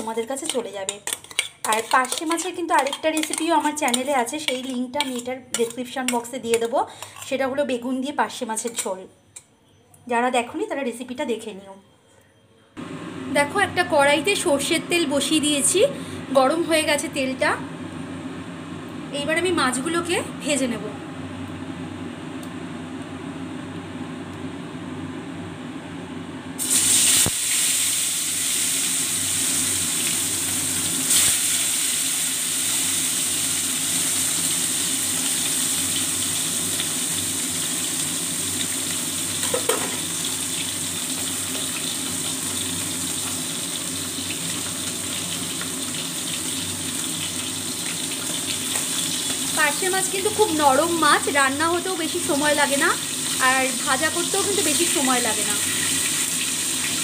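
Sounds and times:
fish sizzling in hot oil: 0.0s - 5.8s, 26.6s - 57.0s.

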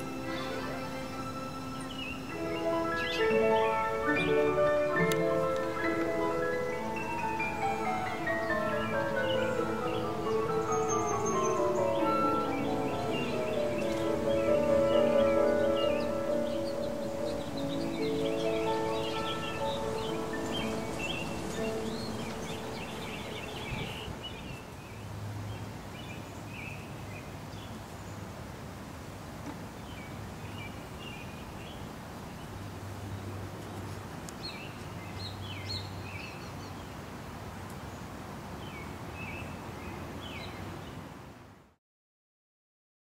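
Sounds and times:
orchestral music: 0.0s - 24.2s
steady hiss: 0.0s - 24.8s
small birds chirping: 0.0s - 28.1s.

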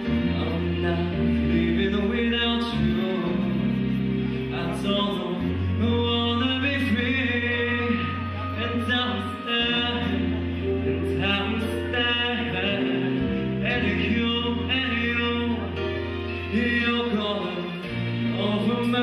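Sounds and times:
instrumental accompaniment with deep bass: 0.0s - 19.0s
man singing into microphone: 0.0s - 19.0s.

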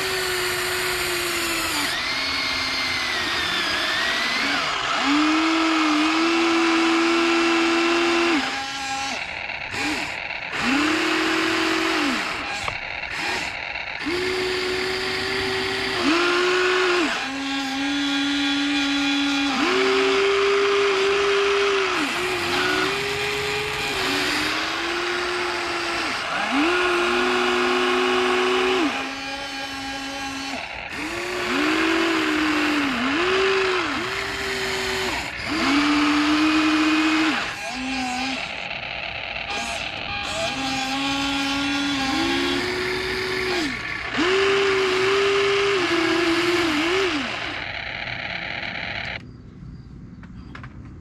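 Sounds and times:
electric motors whining: 0.0s - 49.4s.

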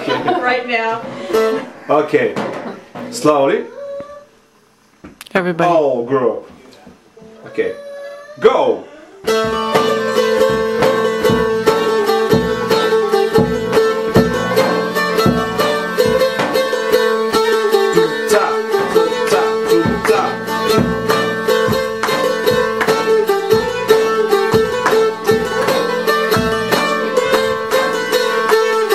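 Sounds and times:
strummed lute with drone strings: 9.3s - 28.9s.

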